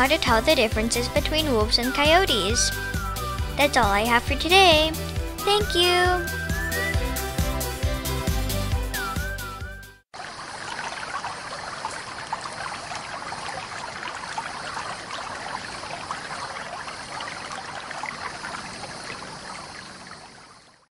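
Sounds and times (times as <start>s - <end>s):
music jingle: 0.0s - 10.0s
stream babbling: 10.2s - 20.9s.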